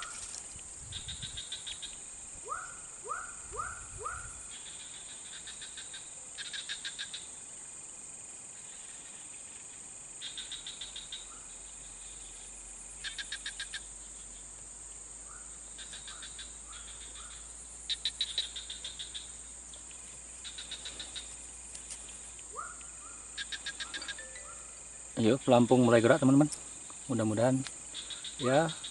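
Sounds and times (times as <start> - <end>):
frogs trilling: 0.0 - 7.4, 10.2 - 14.4, 15.2 - 28.9
high-pitched insect drone: 20.4 - 28.9
rising chirps: 23.6 - 25.9.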